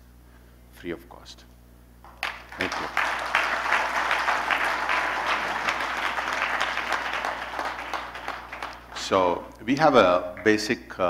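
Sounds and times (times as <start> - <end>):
audience applauding: 2.1 - 10.6.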